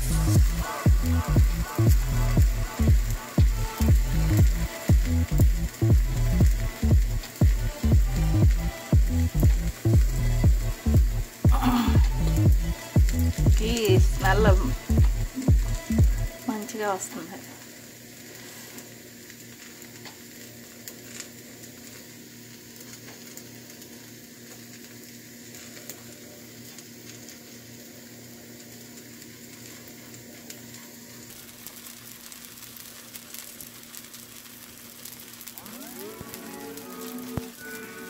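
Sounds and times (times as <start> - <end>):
batter sizzling on griddle: 0.0 - 38.0.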